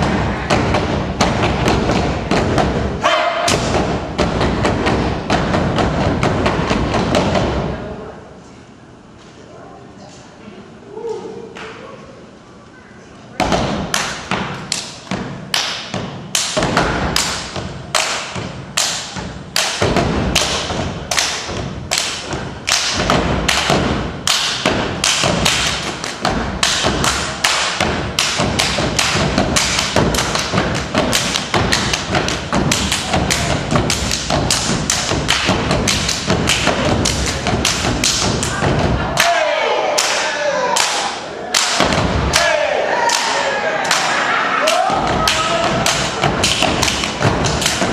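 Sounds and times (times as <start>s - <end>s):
people clapping in unison: 15.5s - 47.9s.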